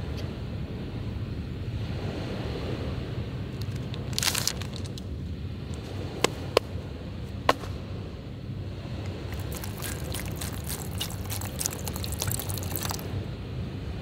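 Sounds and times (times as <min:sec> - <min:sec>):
crackling and fizzing: 0:03.6 - 0:05.0, 0:09.3 - 0:13.1
water pouring: 0:09.3 - 0:13.1.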